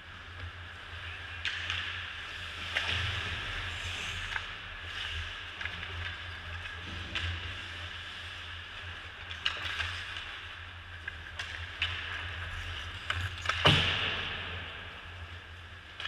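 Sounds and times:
hockey sticks and puck clacking: 0:00.4 - 0:03.2, 0:09.2 - 0:14.7
skates scraping ice: 0:00.5 - 0:16.0.

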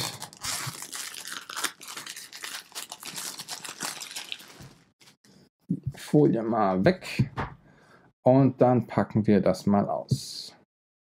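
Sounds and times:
plastic film crinkling: 0:00.0 - 0:05.2.

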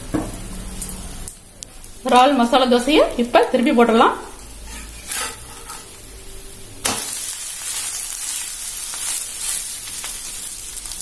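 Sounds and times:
dosa sizzling on a pan: 0:00.0 - 0:11.0
spatula flipping dosa: 0:04.7 - 0:05.9.

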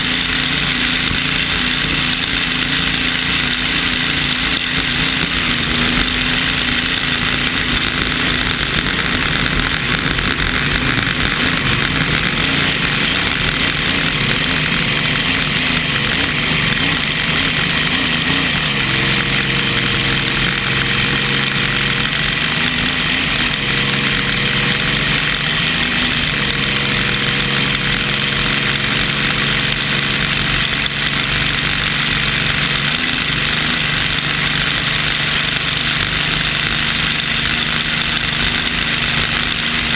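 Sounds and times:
boat engine drone: 0:00.0 - 0:39.9.

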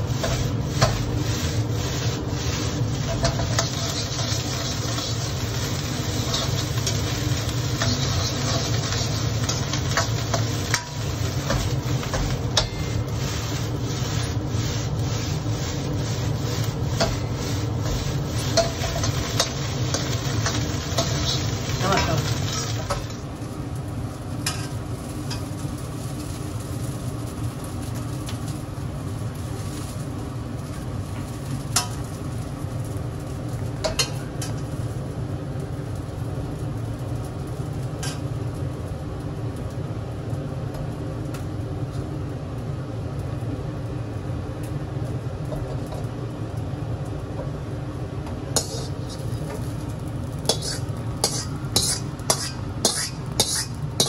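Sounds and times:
steady low hum: 0:00.0 - 0:54.0
metal ladle scraping a wok: 0:00.1 - 0:23.2, 0:48.6 - 0:49.6, 0:50.4 - 0:54.0.

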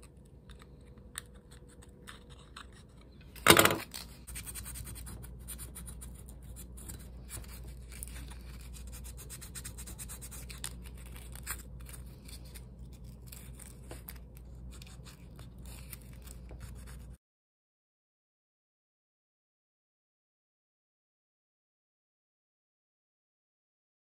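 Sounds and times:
faint low hum: 0:00.0 - 0:17.2.

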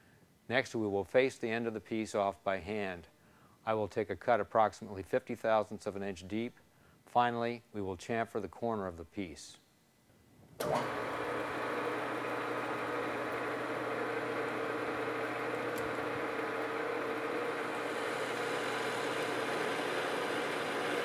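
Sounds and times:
metal lathe humming: 0:10.6 - 0:21.0.

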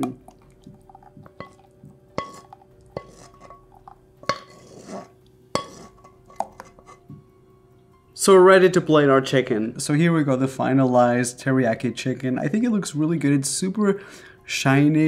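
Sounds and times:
faint music tone: 0:00.0 - 0:15.0
utensil clinking in pan: 0:00.9 - 0:05.0
utensil scraping pan: 0:02.2 - 0:07.0.

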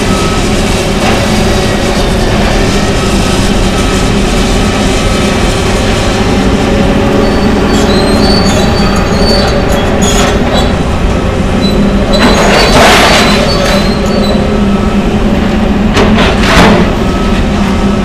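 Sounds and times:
excavators running under load: 0:00.0 - 0:18.0
high metallic squeals: 0:02.0 - 0:14.9.

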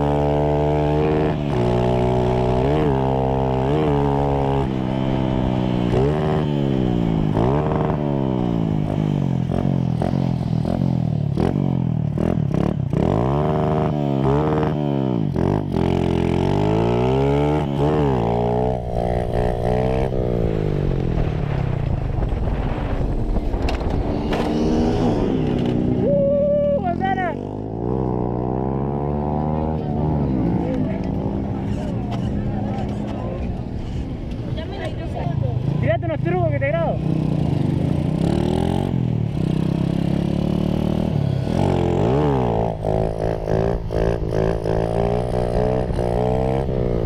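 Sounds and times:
small motorcycle engine revving: 0:00.0 - 0:21.0, 0:23.5 - 0:26.1, 0:37.0 - 0:47.0
wind on microphone: 0:18.9 - 0:26.2.

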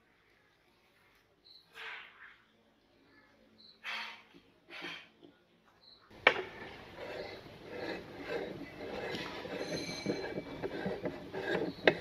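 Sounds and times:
metallic scraping and rattling: 0:06.1 - 0:12.0.

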